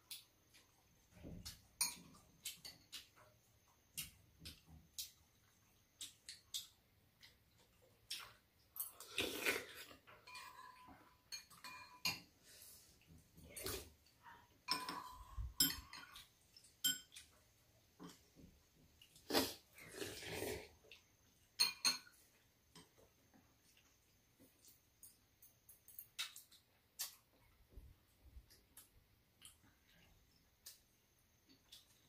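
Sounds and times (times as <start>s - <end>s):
spoons clinking against bowls: 1.8s - 3.1s, 10.0s - 12.3s, 14.6s - 17.4s, 21.6s - 22.2s.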